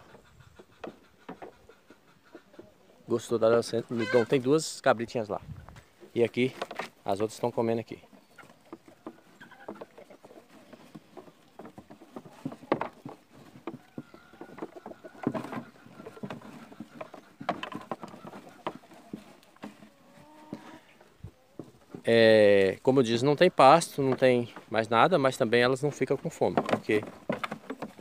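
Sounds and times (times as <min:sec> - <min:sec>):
sheep chewing and rustling stems: 0:05.4 - 0:28.0
trough knocking: 0:08.4 - 0:19.9, 0:26.0 - 0:28.0.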